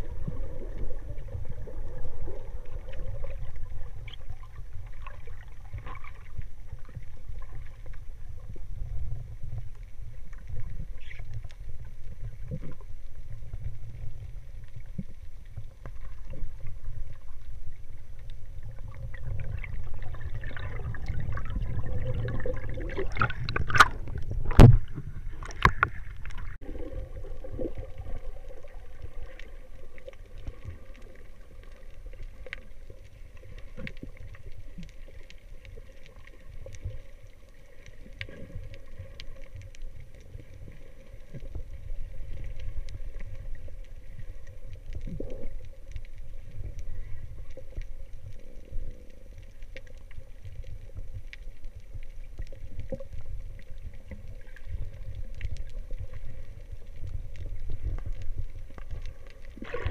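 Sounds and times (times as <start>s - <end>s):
faint steady hum: 0.0s - 59.9s
low rumbling underwater movement: 0.0s - 59.9s
faint clicks: 28.5s - 59.9s.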